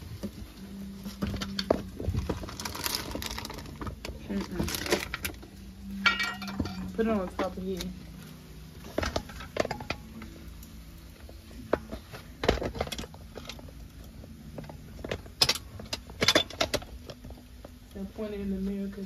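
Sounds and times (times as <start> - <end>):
low steady hum: 0.0 - 19.0
dishes clinking and knocking: 5.9 - 7.6, 14.5 - 17.2.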